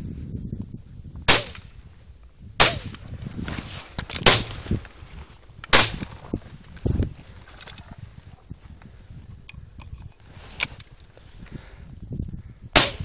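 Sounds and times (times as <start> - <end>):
footsteps crunching on crusted snow: 3.1 - 8.8.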